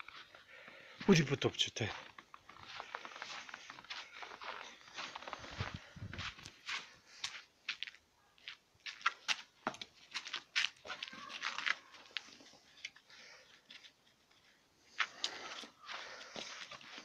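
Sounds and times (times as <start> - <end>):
footsteps crunching in snow: 1.0 - 12.8, 13.8 - 17.0
dog paws crunching in snow: 1.9 - 12.6.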